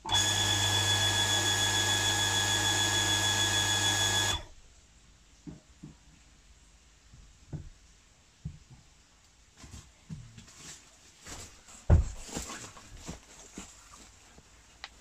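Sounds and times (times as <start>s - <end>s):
electric water pump humming: 0.0s - 4.6s.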